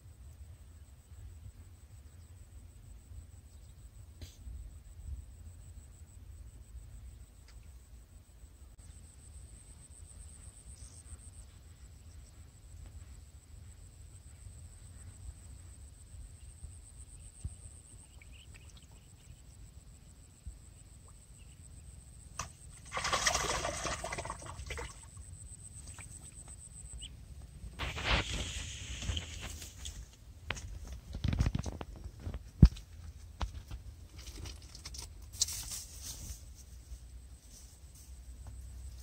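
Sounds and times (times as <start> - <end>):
fish thrashing and splashing: 22.7 - 25.1.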